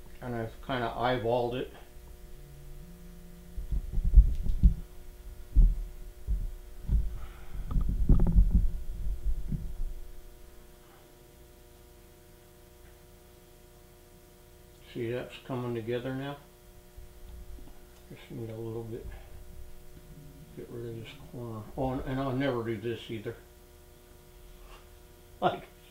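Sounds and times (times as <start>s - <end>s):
steady electrical hum: 0.0s - 25.9s
handling thumps and rumbling: 3.5s - 10.4s.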